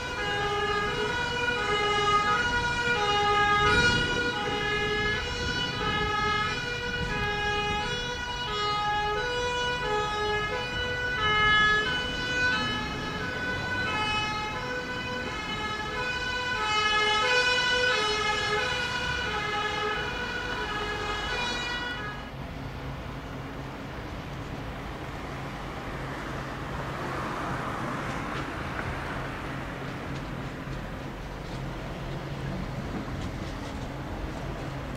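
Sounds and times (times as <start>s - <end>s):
two-tone fire engine siren: 0.0s - 22.4s.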